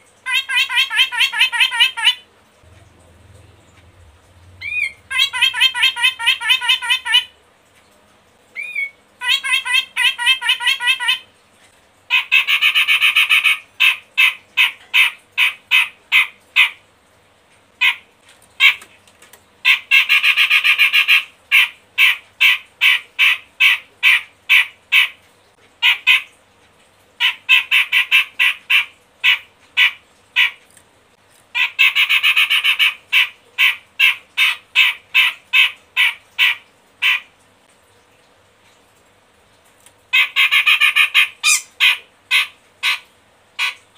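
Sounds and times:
bird harsh chattering calls: 0:04.6 - 0:07.3, 0:40.2 - 0:43.0.

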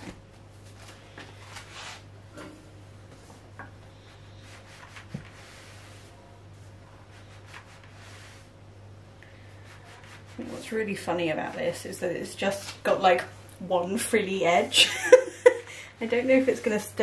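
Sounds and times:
steady low hum: 0:00.0 - 0:17.0
fabric heat pad rustling: 0:04.1 - 0:08.6, 0:16.0 - 0:17.0.

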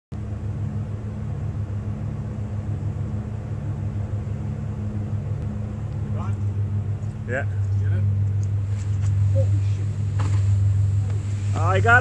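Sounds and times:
ship engines humming: 0:00.1 - 0:12.0.

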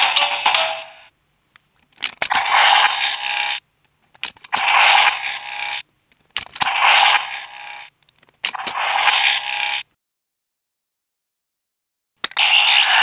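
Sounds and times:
toy electronic sound effects: 0:00.0 - 0:01.1, 0:02.2 - 0:03.6, 0:04.2 - 0:05.8, 0:06.4 - 0:09.9, 0:12.3 - 0:13.0.

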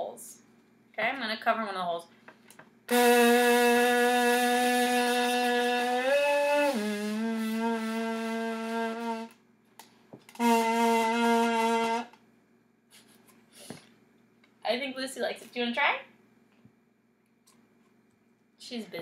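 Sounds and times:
kazoo buzzing: 0:02.9 - 0:09.4, 0:10.3 - 0:12.2.

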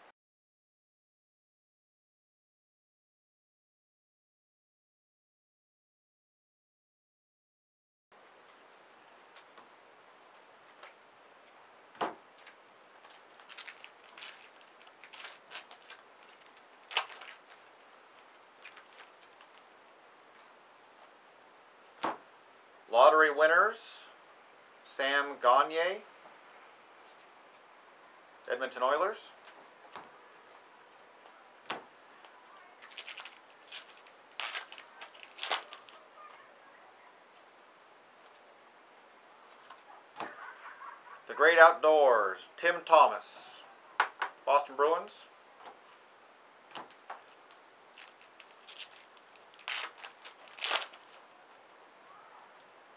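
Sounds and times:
card wrapper crinkling and tearing: 0:12.4 - 0:19.7, 0:32.8 - 0:36.1, 0:46.9 - 0:51.4
cards being handled: 0:31.7 - 0:36.2, 0:46.7 - 0:51.3.

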